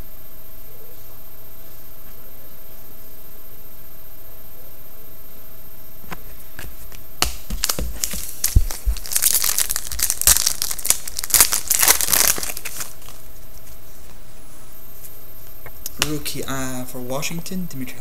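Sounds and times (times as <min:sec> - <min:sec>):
wrapper tearing and crinkling: 0:07.6 - 0:13.2.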